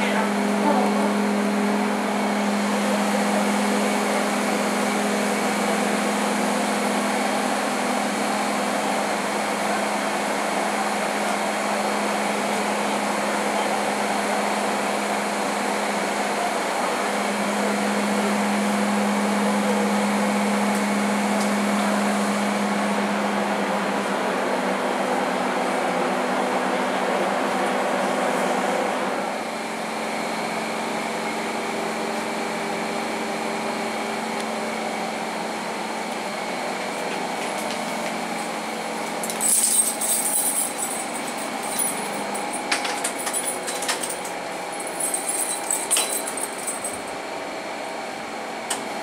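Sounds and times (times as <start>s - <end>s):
train air-conditioning whirring hum: 20.6s - 49.0s.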